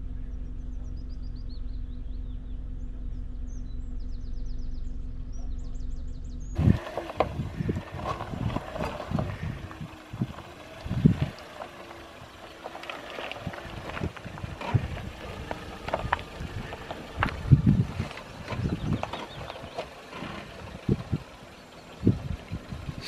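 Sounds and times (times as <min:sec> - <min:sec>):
engine running low: 0:00.0 - 0:23.0
tyres crunching on stone: 0:06.6 - 0:21.2.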